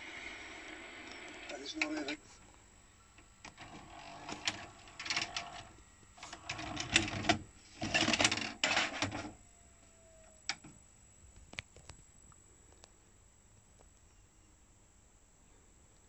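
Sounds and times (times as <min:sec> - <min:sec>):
vcr loading mechanism clicking and whirring: 0:00.0 - 0:10.8
faint falling whine: 0:00.0 - 0:14.8
plastic cassette scraping: 0:03.4 - 0:09.4.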